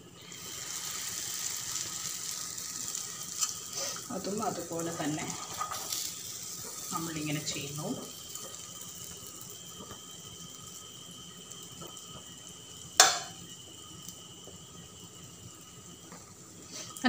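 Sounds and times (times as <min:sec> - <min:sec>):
oil sizzling in a pan: 0:00.0 - 0:17.0
sharp clink: 0:13.0 - 0:13.4.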